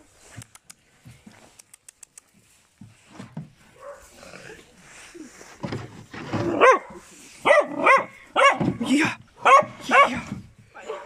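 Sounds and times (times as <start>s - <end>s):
puppy barking: 3.8s - 4.1s, 6.5s - 8.8s, 9.4s - 10.2s.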